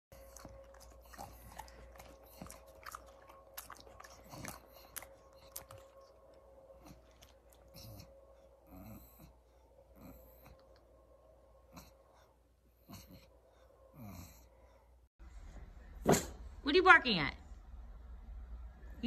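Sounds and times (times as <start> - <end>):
dog chewing: 0.1 - 8.1
faint steady hum: 0.1 - 19.0.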